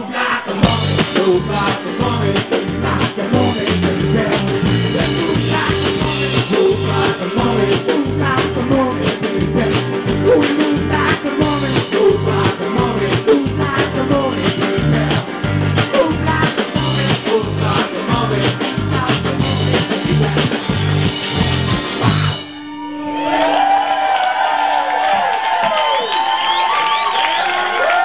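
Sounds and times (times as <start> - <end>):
rhythmic bass line: 0.0 - 23.7
long held note: 22.4 - 24.2.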